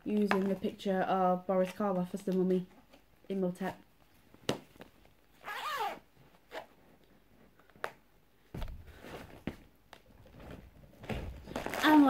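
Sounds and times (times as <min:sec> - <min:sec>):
zipper on case: 0:05.4 - 0:06.7
fabric bag rustling: 0:10.2 - 0:12.0.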